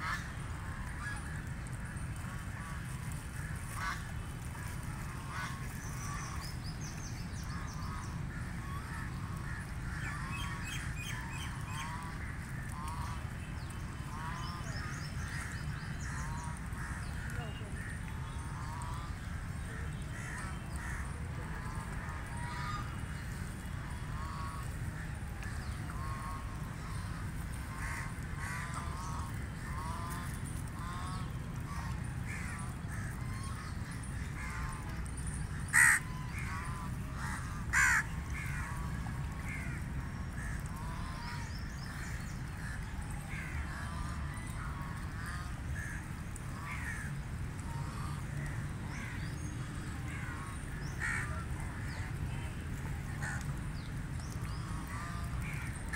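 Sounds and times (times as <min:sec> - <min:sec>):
ducks quacking: 0:07.5 - 0:13.4, 0:14.0 - 0:24.8, 0:35.7 - 0:41.4.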